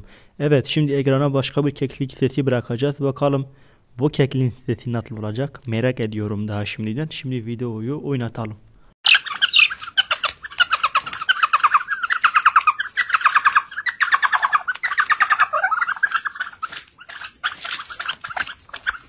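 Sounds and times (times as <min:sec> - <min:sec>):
partridge calling: 0:09.0 - 0:19.0.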